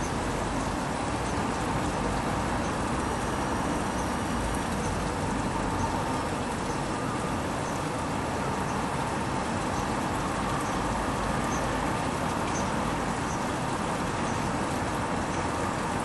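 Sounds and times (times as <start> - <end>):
distant road traffic hum: 0.0 - 16.0.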